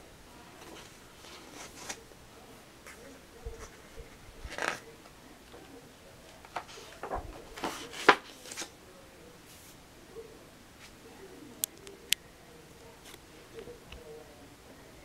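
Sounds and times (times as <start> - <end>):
pages turning rustle: 0.6 - 2.0, 2.8 - 5.7, 6.3 - 8.8
paper snap: 4.5 - 4.9, 6.3 - 8.7.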